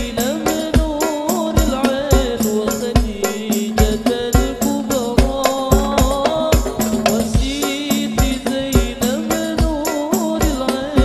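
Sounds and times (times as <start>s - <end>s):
hand-struck frame drums: 0.0s - 11.0s
man singing devotional melody: 0.0s - 11.0s
sharp high drum slaps: 0.0s - 11.0s
deep bass-drum strokes: 1.6s - 9.8s.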